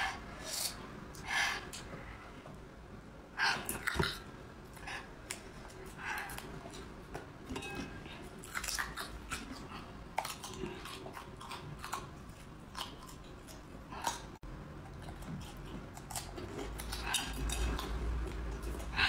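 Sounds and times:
chewing crunchy garlic: 7.5 - 19.0.

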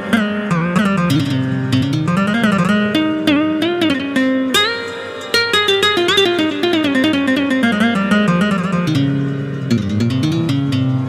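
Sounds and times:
synthesizer plucked guitar-like patch: 0.0 - 11.0.

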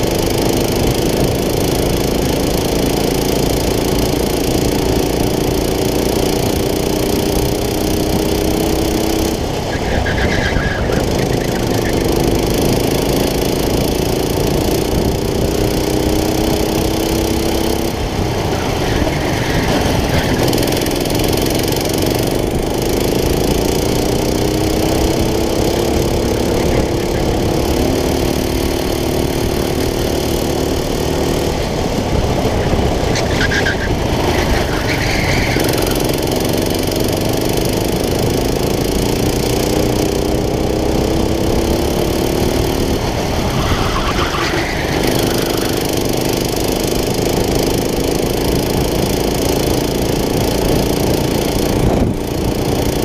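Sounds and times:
go-kart engine revving: 0.0 - 53.0
steady rushing noise: 25.9 - 53.0.

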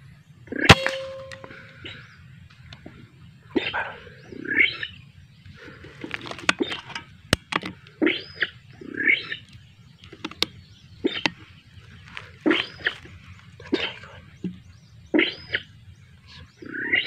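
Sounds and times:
sharp crack: 0.7 - 1.8.

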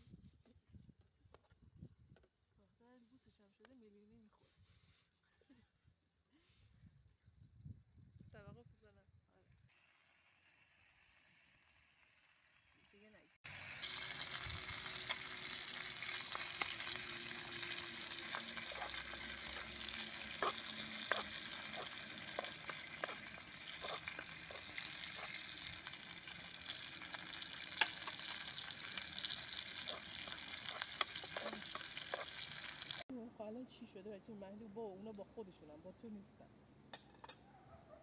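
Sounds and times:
food sizzling in a frying pan: 9.7 - 33.1
metal spoon scraping a pan: 14.8 - 25.7, 27.3 - 32.8.

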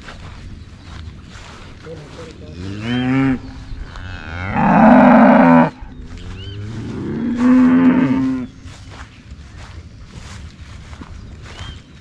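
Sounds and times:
cattle mooing: 2.6 - 5.8, 6.5 - 8.5.

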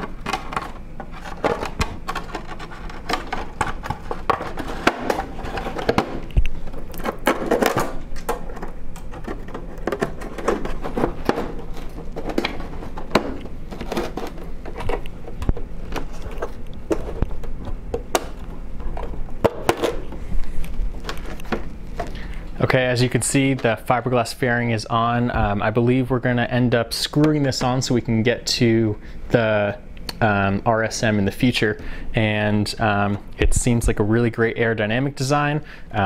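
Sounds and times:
scraping and rubbing: 0.0 - 22.0.

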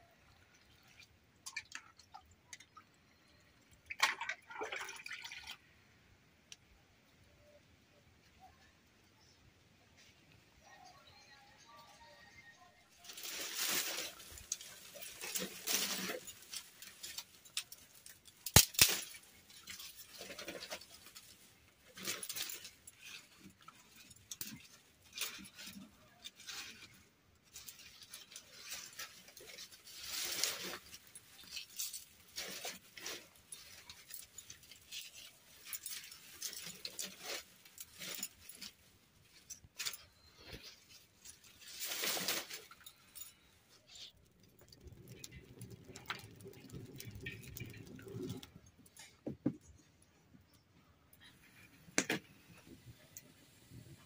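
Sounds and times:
dry twigs rustling and crackling: 12.9 - 54.0
sharp crack: 18.4 - 19.3.

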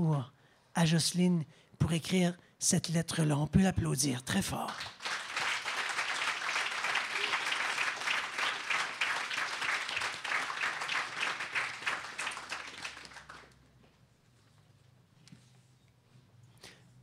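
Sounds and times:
audience applauding: 4.6 - 13.6.

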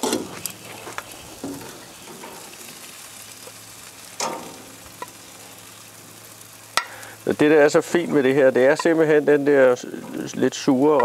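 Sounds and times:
food sizzling on a grill: 0.0 - 11.0
metal tongs clinking: 4.2 - 5.1.

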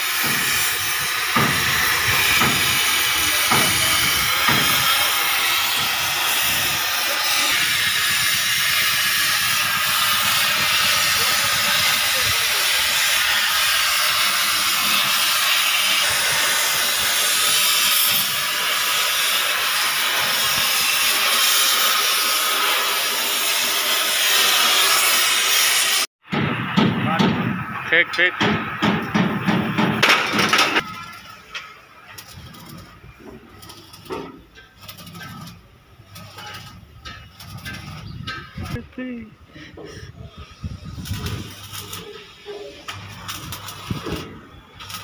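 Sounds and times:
cutting torch hissing: 0.0 - 26.1, 39.4 - 45.0.

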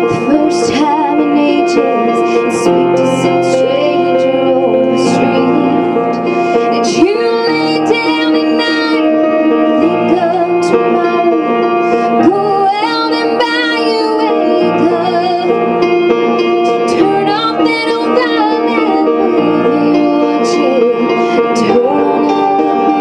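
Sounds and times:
sustained instrumental chords: 0.0 - 23.0
person singing slow melody: 16.7 - 23.0.

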